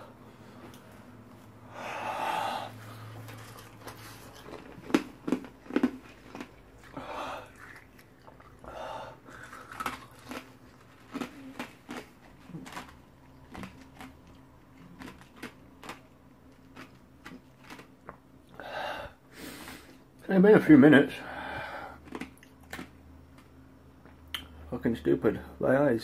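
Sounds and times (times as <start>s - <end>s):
man breathing hard: 1.6s - 3.3s, 6.9s - 7.6s, 8.6s - 9.6s, 18.6s - 20.0s, 21.2s - 22.0s
mouth clicks and smacks: 24.0s - 24.6s.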